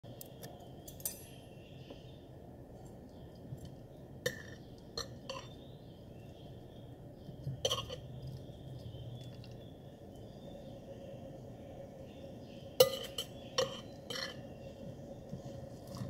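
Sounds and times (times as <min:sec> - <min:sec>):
faint low hum: 0:00.0 - 0:16.0
cutlery clinking on a plate: 0:12.8 - 0:14.4.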